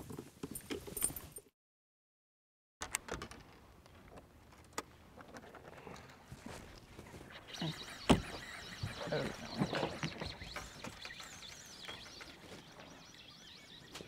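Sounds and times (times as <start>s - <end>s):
faint outdoor ambience: 2.9s - 14.0s.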